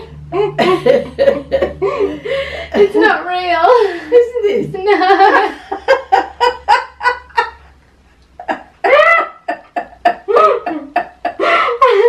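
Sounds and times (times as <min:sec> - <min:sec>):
women laughing hard: 0:00.3 - 0:03.0, 0:04.8 - 0:07.7, 0:08.4 - 0:12.0.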